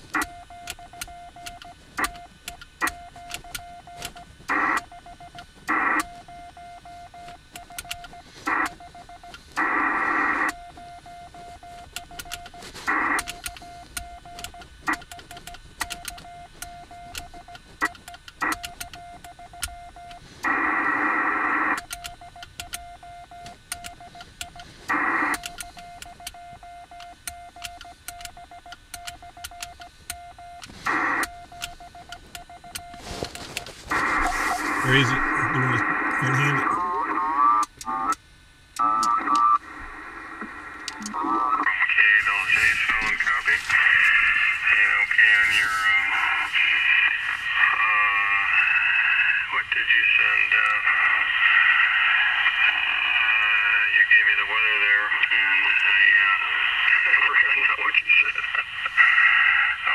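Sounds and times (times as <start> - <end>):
static crackles: 0.0 - 6.3, 7.2 - 22.8, 23.4 - 26.4, 27.1 - 59.9
radio hissing bursts: 32.9 - 36.8, 40.5 - 59.9
radio whistle-like tone: 33.9 - 36.8, 41.0 - 57.6.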